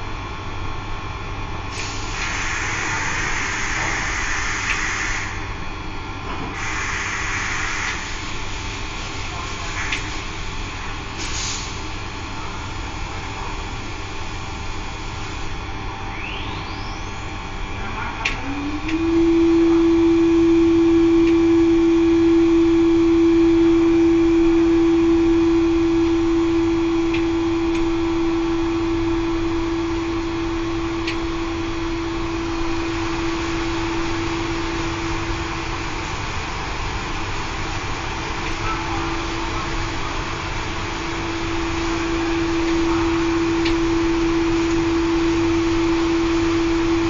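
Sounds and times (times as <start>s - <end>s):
circulation pump humming: 0.0s - 47.0s
loud single tone: 16.0s - 17.4s, 18.2s - 35.5s, 41.0s - 47.0s.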